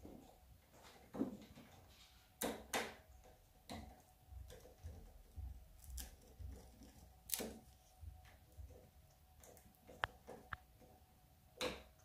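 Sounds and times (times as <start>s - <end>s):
parrot beak gnawing wood: 3.7s - 10.9s.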